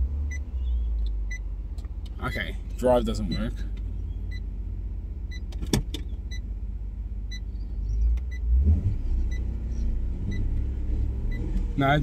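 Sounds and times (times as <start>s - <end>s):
car engine running: 0.0s - 12.0s
engine revving: 8.0s - 12.0s.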